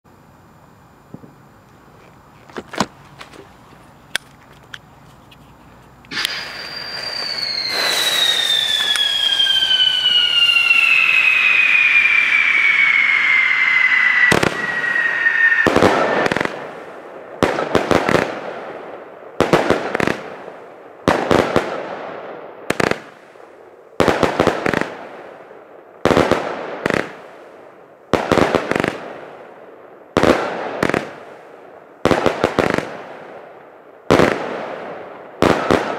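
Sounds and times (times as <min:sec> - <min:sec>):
firework whistle falling in pitch: 0:06.1 - 0:17.0
firework bangs with crackling: 0:06.1 - 0:23.3, 0:24.0 - 0:25.4, 0:26.0 - 0:27.4, 0:28.1 - 0:31.3, 0:32.0 - 0:33.5, 0:34.1 - 0:35.9.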